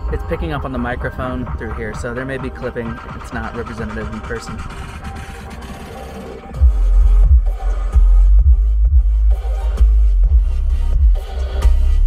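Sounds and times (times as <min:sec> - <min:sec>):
loud music through subwoofers: 0:00.0 - 0:12.0
deep sliding bass hits: 0:06.6 - 0:11.2.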